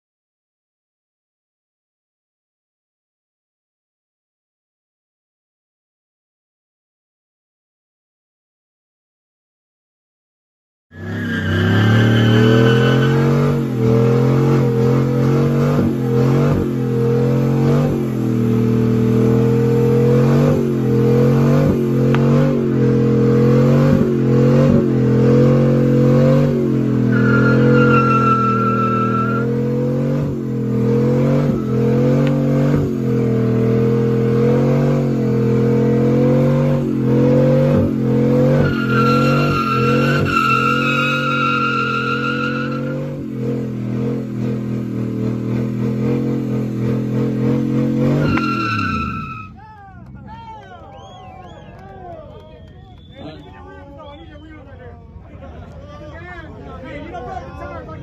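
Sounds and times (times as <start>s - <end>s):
tire squealing: 10.9s - 54.9s
engine revving high: 11.0s - 49.6s.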